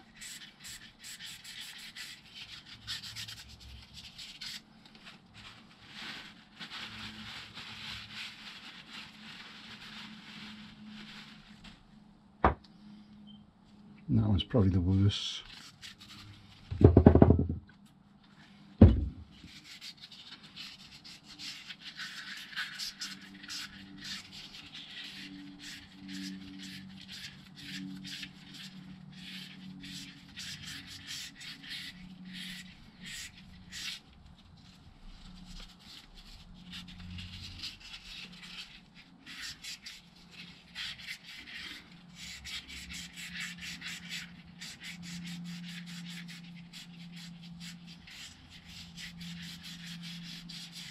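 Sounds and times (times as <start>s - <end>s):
abrasive paper rubbing on metal: 0.0s - 12.0s, 15.2s - 17.6s, 18.9s - 50.9s
loud knock: 16.7s - 17.6s, 18.8s - 19.2s.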